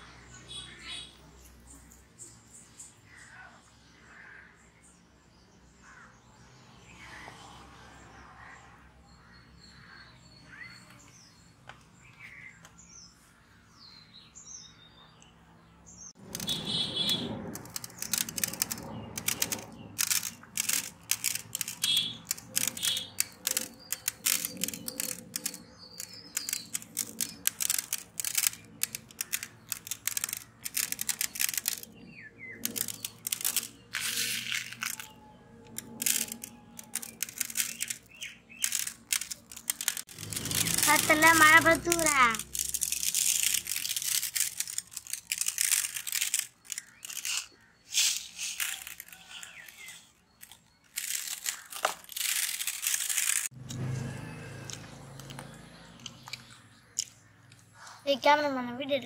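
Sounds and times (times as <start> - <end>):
birds chirping faintly: 0.0 - 59.0.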